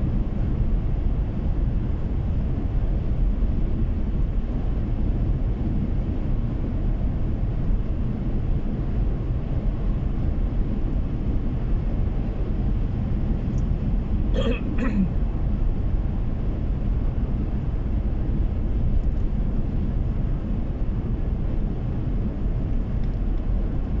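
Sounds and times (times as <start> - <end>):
car cabin road and engine rumble: 0.0 - 24.0.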